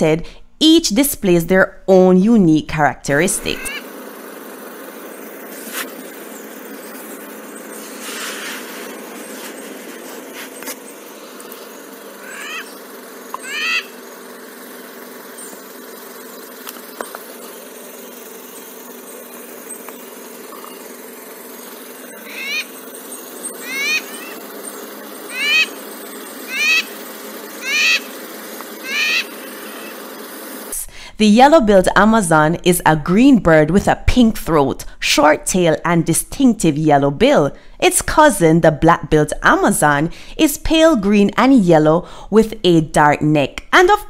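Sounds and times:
parrot calling: 0:03.3 - 0:03.9, 0:06.4 - 0:14.1, 0:21.6 - 0:30.1.

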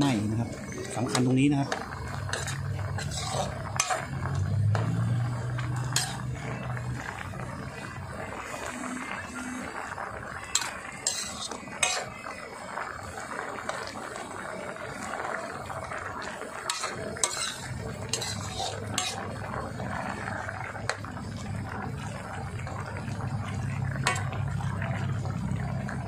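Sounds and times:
curry bubbling in a wok: 0:00.0 - 0:26.0
metal ladle scraping a wok: 0:00.1 - 0:13.9, 0:14.9 - 0:21.3, 0:23.5 - 0:24.6.

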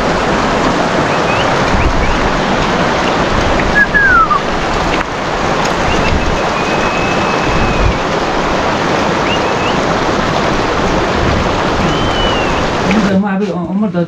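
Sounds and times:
stream rushing over rocks: 0:00.0 - 0:13.4
thin high whistles: 0:03.8 - 0:04.4, 0:05.9 - 0:08.0, 0:11.8 - 0:12.8.

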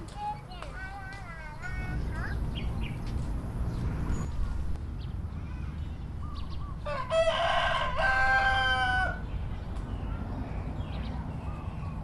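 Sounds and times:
rooster crowing: 0:06.8 - 0:09.2.

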